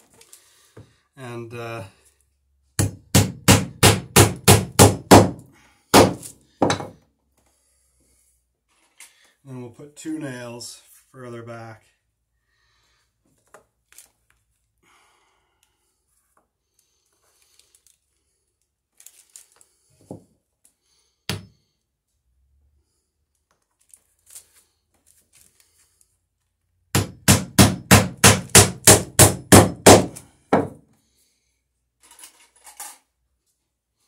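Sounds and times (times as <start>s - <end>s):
hammer driving nail into wood: 2.8s - 7.0s, 26.9s - 30.8s.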